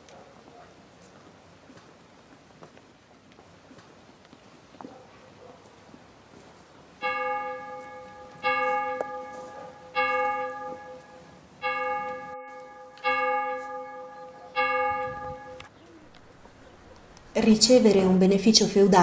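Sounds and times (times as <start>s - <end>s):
church bell tolling: 7.0s - 15.7s.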